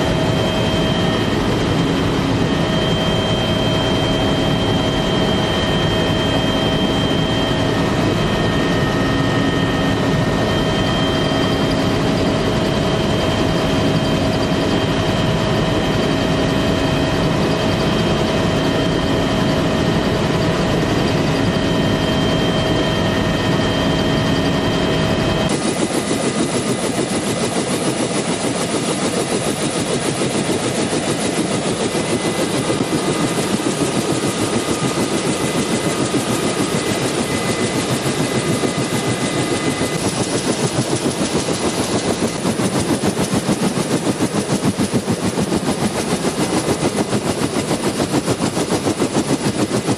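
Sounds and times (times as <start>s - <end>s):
steady whine: 0.0s - 15.9s, 19.7s - 49.9s
helicopter rotor chopping: 0.0s - 49.9s.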